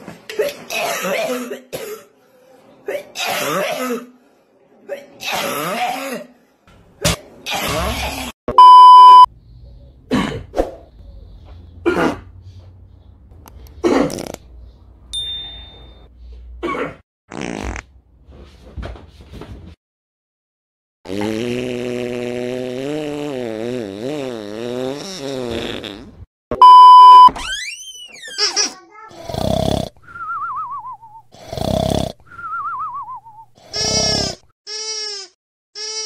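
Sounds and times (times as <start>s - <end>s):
cartoon farts: 13.9s - 14.4s, 17.3s - 17.9s, 21.1s - 26.3s, 28.2s - 29.9s.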